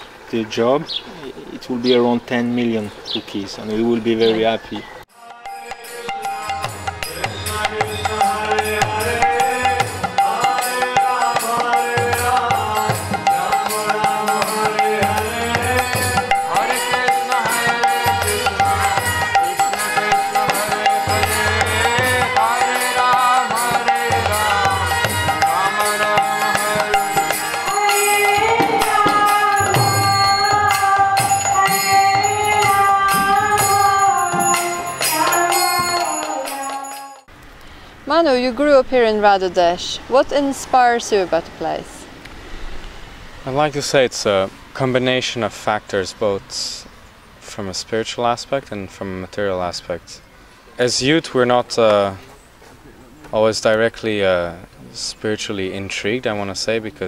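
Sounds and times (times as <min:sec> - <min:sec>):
person singing: 0:05.1 - 0:37.3
hand drum beating a pattern: 0:05.4 - 0:37.0.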